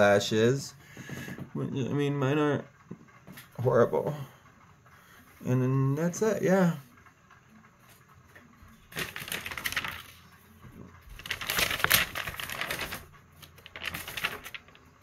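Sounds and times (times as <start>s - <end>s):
crinkling rustle: 7.8s - 15.0s.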